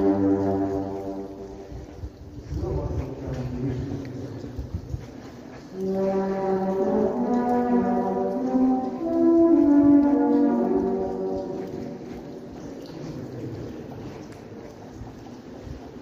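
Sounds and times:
trombone playing slow melody: 0:00.0 - 0:01.7, 0:05.8 - 0:12.4.

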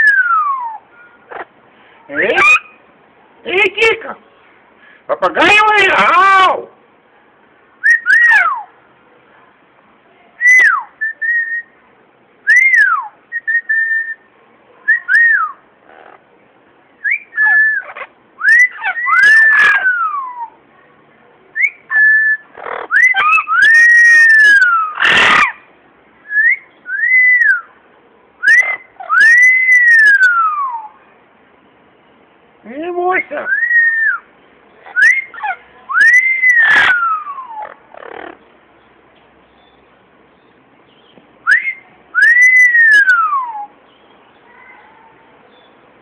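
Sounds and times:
harsh parrot noises: 0:00.0 - 0:02.9, 0:07.8 - 0:08.8, 0:14.9 - 0:16.3, 0:17.0 - 0:20.6, 0:21.6 - 0:25.7, 0:28.4 - 0:31.0, 0:33.2 - 0:38.7, 0:41.4 - 0:45.8.

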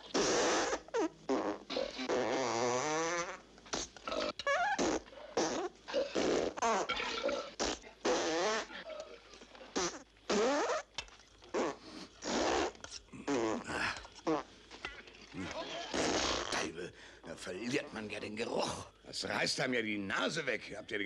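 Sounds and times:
men farting: 0:00.0 - 0:16.7.

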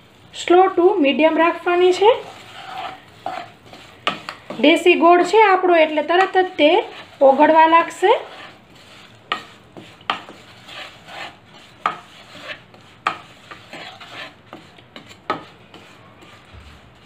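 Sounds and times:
spatula scraping in oil: 0:00.5 - 0:17.0.

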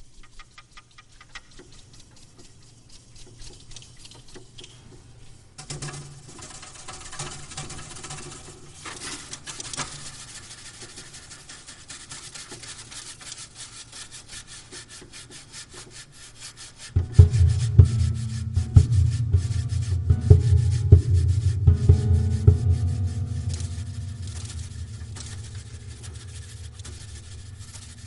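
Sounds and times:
scraping on piano strings: 0:05.8 - 0:28.0
low piano bass notes: 0:17.0 - 0:28.0.

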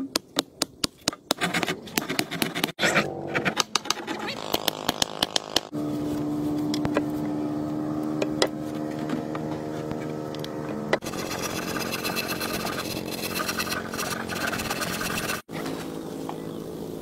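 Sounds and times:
small petrol engine running: 0:11.0 - 0:17.0.

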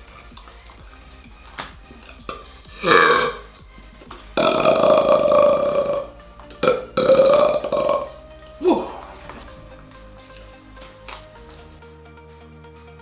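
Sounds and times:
background music: 0:00.0 - 0:13.0
man belching: 0:02.2 - 0:03.5, 0:04.4 - 0:09.5.

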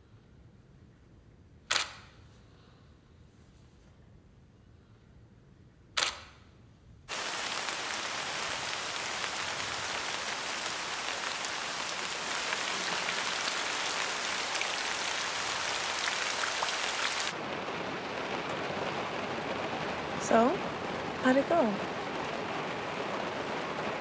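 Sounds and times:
camera shutter click: 0:01.7 - 0:02.1, 0:06.0 - 0:06.3
raindrop ticks: 0:07.1 - 0:17.4, 0:18.2 - 0:24.0
steady rain: 0:07.1 - 0:24.0.

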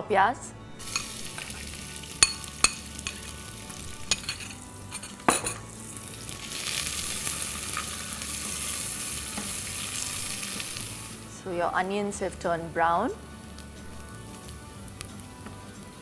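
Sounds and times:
spatula stirring: 0:00.8 - 0:05.3
onion sizzling in oil: 0:00.8 - 0:16.0.

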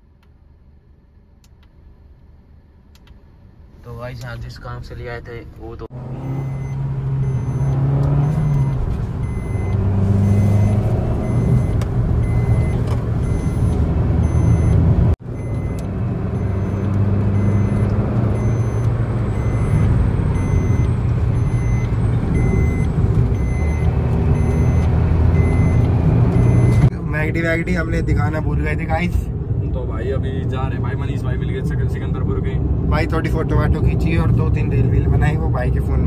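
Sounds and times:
car engine and tyre noise: 0:00.0 - 0:36.0
faint electronic warning beep: 0:06.3 - 0:14.8, 0:16.4 - 0:25.8, 0:26.4 - 0:26.9.

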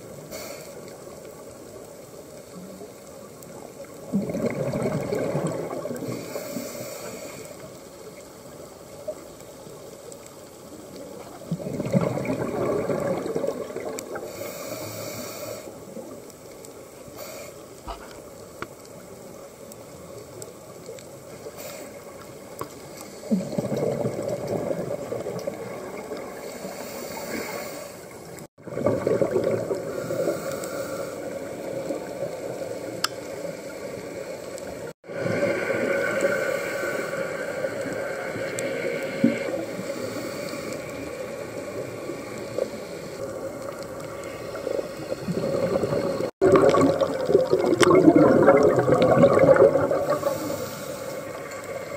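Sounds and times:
bubbles gurgling: 0:03.8 - 0:06.2, 0:11.2 - 0:14.3, 0:23.3 - 0:26.4, 0:28.6 - 0:30.2, 0:43.4 - 0:50.6.

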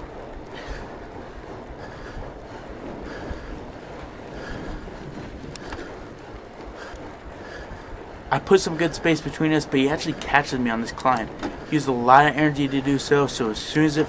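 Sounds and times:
bike tyres rolling on trail: 0:00.0 - 0:14.0
wind rushing over microphone: 0:00.0 - 0:14.0.

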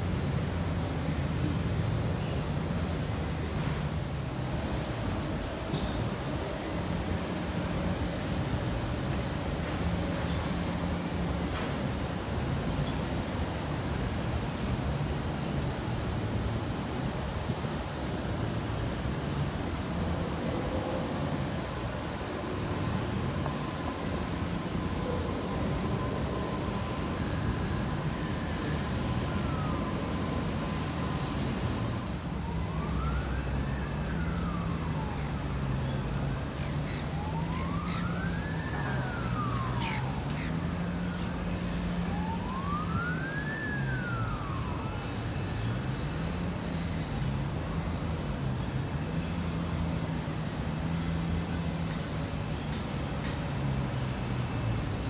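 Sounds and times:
low hum of traffic: 0:00.0 - 0:55.0
emergency siren wailing: 0:18.0 - 0:54.8.

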